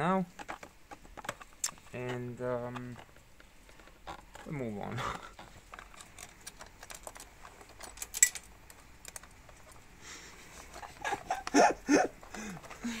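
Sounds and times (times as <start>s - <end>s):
metal bolts clicking and rattling: 5.6s - 9.9s
bolt dropping with metallic clink: 7.8s - 9.2s.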